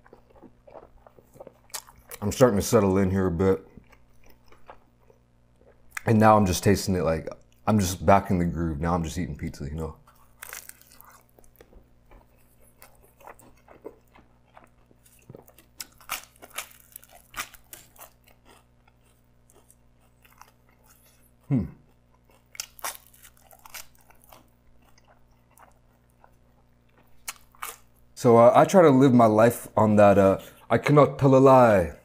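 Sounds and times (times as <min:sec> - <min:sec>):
chewing crunchy pizza crust: 0:00.0 - 0:06.3, 0:09.7 - 0:28.0.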